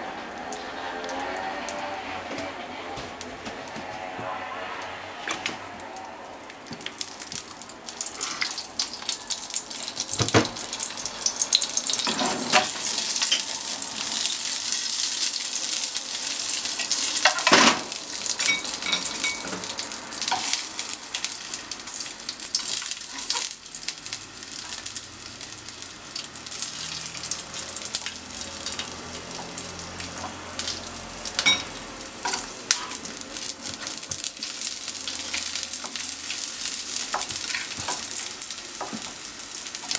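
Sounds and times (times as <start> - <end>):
sausages sizzling in oil: 0.0 - 2.1, 6.3 - 39.9
chopsticks turning sausages: 0.2 - 39.9.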